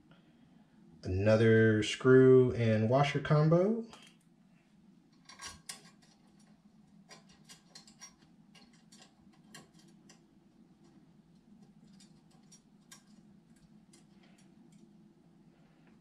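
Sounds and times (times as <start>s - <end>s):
steady low hum: 0.0s - 16.0s
small metal hardware clicking: 7.1s - 10.2s.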